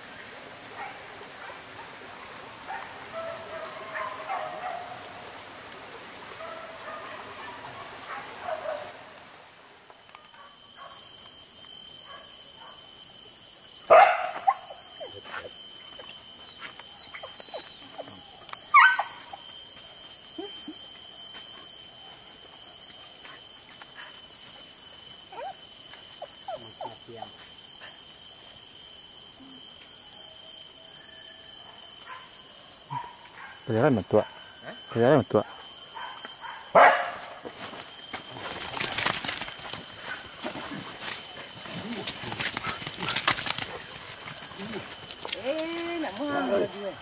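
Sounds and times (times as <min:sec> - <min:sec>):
hunting dogs yelping and barking: 0:00.8 - 0:05.1, 0:06.4 - 0:09.0, 0:10.2 - 0:11.1, 0:12.0 - 0:12.9, 0:13.8 - 0:22.2, 0:23.6 - 0:28.6, 0:31.6 - 0:37.8, 0:38.4 - 0:47.0.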